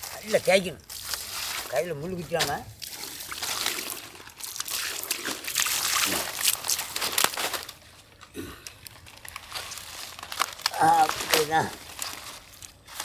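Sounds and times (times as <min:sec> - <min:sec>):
water splashing over fish: 0:00.0 - 0:07.6
wet fronds crackling and rustling: 0:00.0 - 0:13.0.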